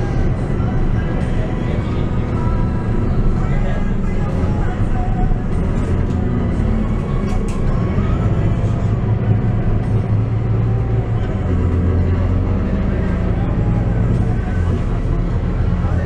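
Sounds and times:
bus diesel engine droning: 0:00.0 - 0:16.0
road and body noise: 0:00.0 - 0:16.0.

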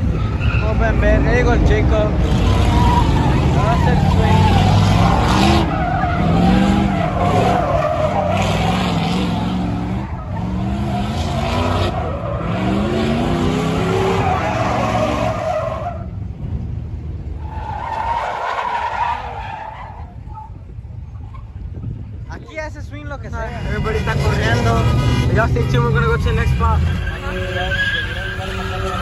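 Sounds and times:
engine revving: 0:02.1 - 0:15.6, 0:23.5 - 0:29.0
tyres squealing: 0:02.2 - 0:16.1, 0:23.5 - 0:29.0.

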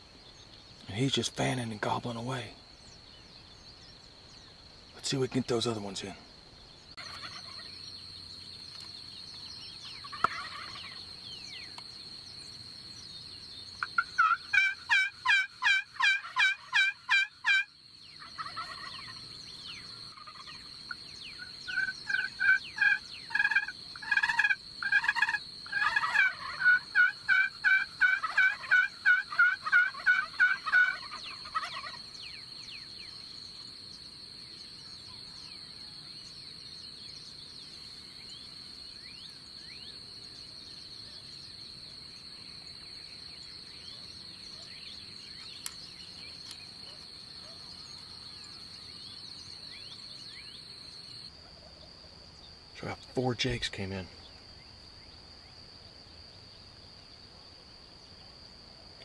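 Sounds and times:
high insect hum: 0:00.0 - 0:59.0
turkey yelping: 0:07.0 - 0:07.7, 0:10.0 - 0:11.0, 0:13.8 - 0:19.2, 0:20.1 - 0:32.0.

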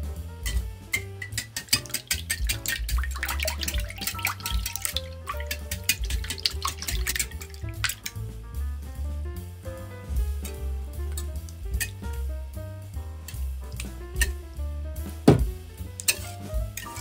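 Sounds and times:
background music: 0:00.0 - 0:17.0
whisk clinking against glass: 0:00.4 - 0:08.1, 0:16.0 - 0:17.0
liquid splashing: 0:01.2 - 0:08.2.

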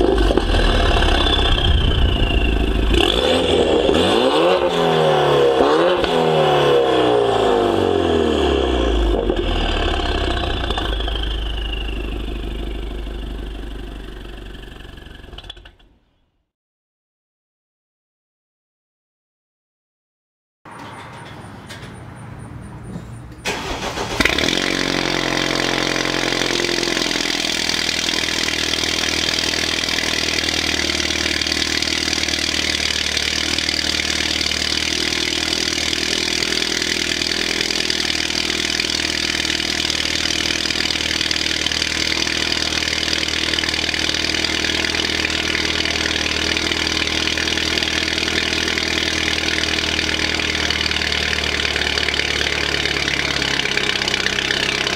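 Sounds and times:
loud car engine idling: 0:00.0 - 0:05.8, 0:06.8 - 0:15.7, 0:23.4 - 0:54.9
engine starter turning: 0:23.4 - 0:25.1.

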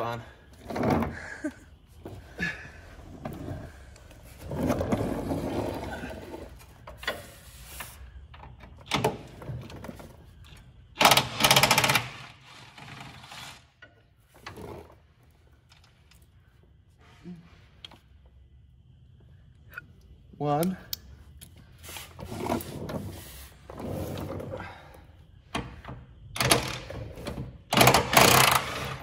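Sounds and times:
creeper rolling on concrete: 0:00.0 - 0:18.0, 0:21.2 - 0:25.5.

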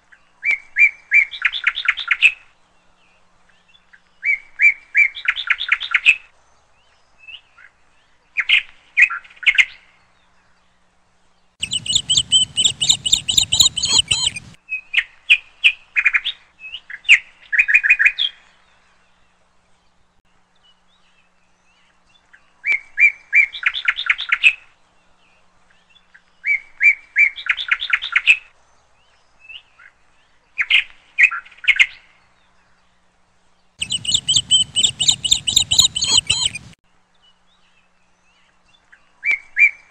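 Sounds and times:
bird chirping in trills: 0:11.6 - 0:14.6, 0:33.8 - 0:36.8.

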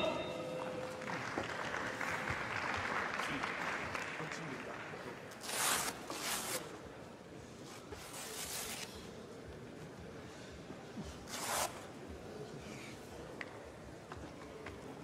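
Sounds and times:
sports hall background: 0:00.0 - 0:15.0.

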